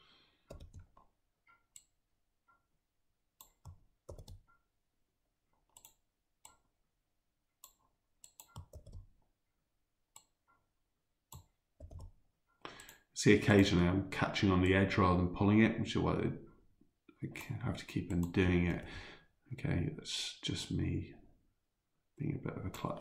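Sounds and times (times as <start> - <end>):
keyboard key presses: 0.5 - 1.0, 3.4 - 4.5, 7.6 - 9.1, 11.3 - 12.2
computer mouse clicks: 0.5 - 2.0, 3.4 - 4.6, 5.6 - 6.7, 7.6 - 9.1, 10.2 - 10.4, 11.3 - 12.2, 12.8 - 13.0, 18.1 - 18.9.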